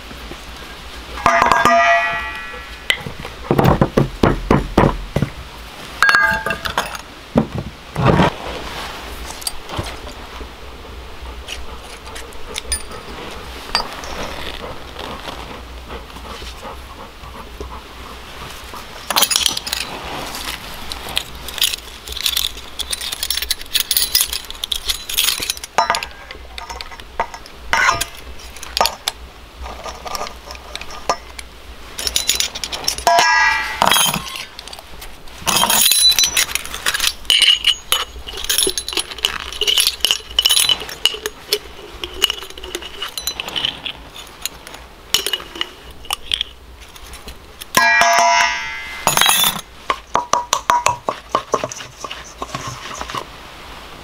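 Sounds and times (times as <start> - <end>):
clicks and scrapes: 18.5 - 53.3
spoons and jars clinking on bowl: 32.0 - 34.8, 35.5 - 44.0, 45.1 - 46.6, 47.7 - 53.2.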